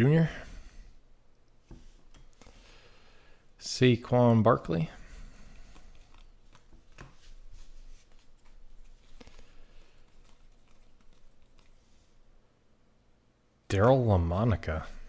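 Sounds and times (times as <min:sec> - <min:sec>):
trading cards rustling: 0:05.3 - 0:12.2.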